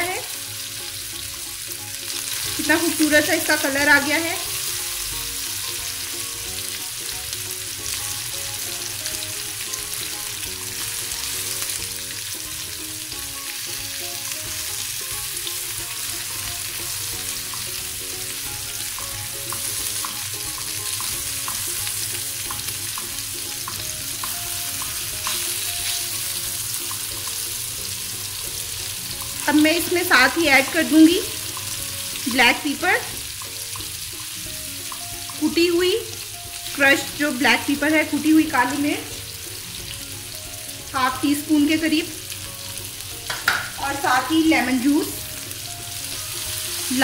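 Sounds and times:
chicken sizzling in pan: 0:00.0 - 0:47.0
tongs clicking against pan: 0:18.9 - 0:21.8, 0:22.4 - 0:26.0.

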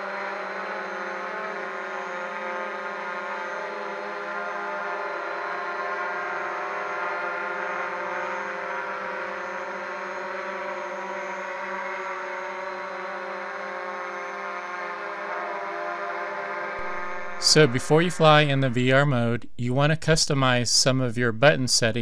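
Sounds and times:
quadcopter drone hovering: 0:00.0 - 0:19.2.

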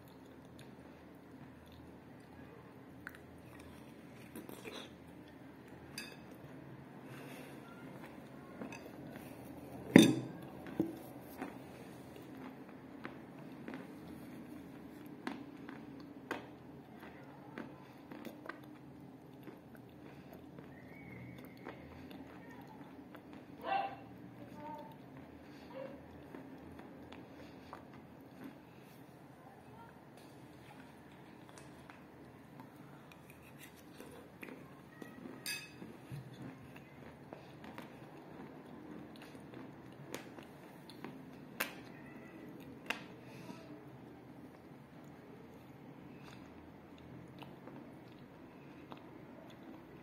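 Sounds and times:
chewing chalk crunches: 0:10.4 - 0:23.6, 0:30.2 - 0:43.4.

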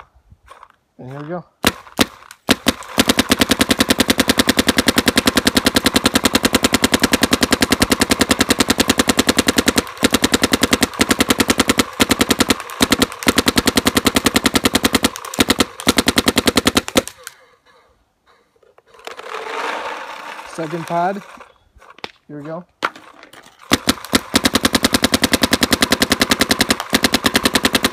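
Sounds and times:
paintball marker rapid firing: 0:01.6 - 0:17.3, 0:23.6 - 0:27.9.

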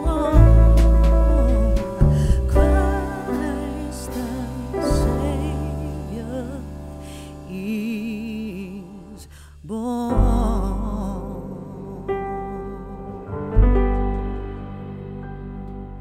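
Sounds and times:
slow vibrato melody: 0:00.0 - 0:08.9
sustained low bass notes: 0:00.0 - 0:16.0.

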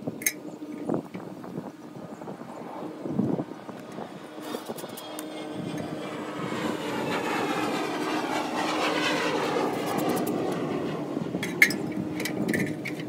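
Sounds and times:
distant engine passing: 0:01.8 - 0:13.0.

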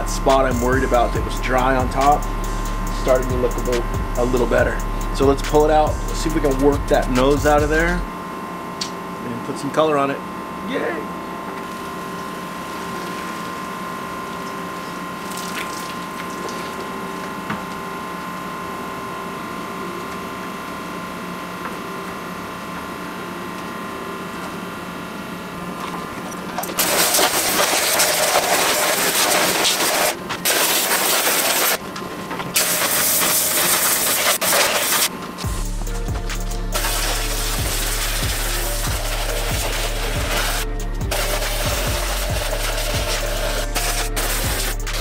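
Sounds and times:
pressure washer humming: 0:00.0 - 0:45.0
water spray hissing: 0:26.8 - 0:31.8, 0:32.6 - 0:35.1, 0:36.3 - 0:45.0.

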